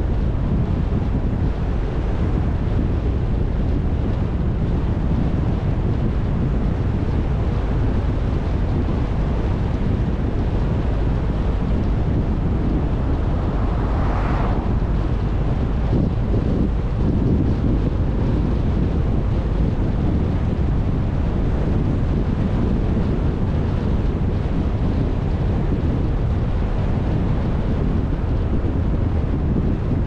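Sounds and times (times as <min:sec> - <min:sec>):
vehicle rumbling on road: 0:00.0 - 0:30.0
wind buffeting microphone: 0:00.0 - 0:30.0
brief whoosh: 0:11.4 - 0:17.0.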